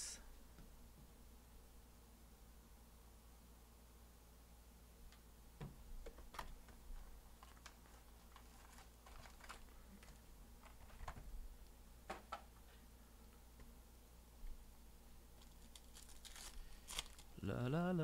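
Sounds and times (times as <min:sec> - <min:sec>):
foil packs rustling: 0:07.3 - 0:11.1, 0:15.4 - 0:17.4.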